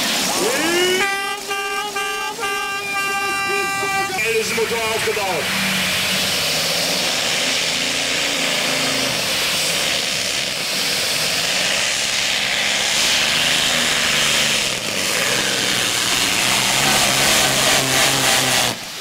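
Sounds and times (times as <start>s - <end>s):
microphone hiss: 0.0s - 9.4s
tractor engine roaring: 0.0s - 19.0s.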